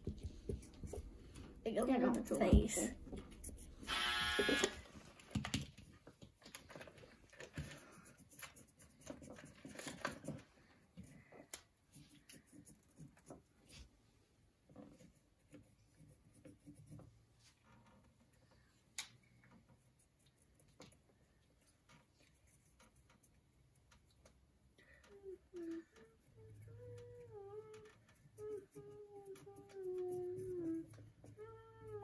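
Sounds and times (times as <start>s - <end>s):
markers tapping plastic figures: 18.9s - 32.0s.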